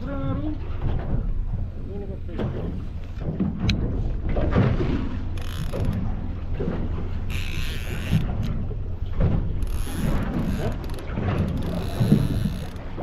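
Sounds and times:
low rumble of wind and boat: 0:00.0 - 0:13.0
fishing reel ratcheting: 0:05.3 - 0:06.1, 0:07.3 - 0:08.6, 0:09.6 - 0:13.0.

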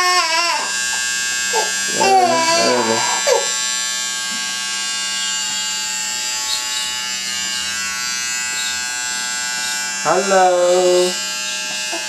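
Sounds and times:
electric hair clipper buzzing: 0:00.0 - 0:12.0.

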